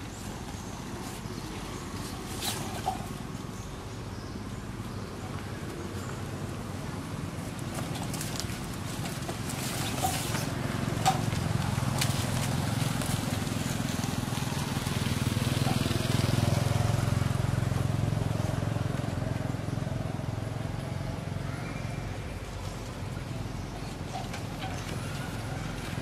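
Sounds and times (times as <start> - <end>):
motorbike engine running: 6.3 - 21.6.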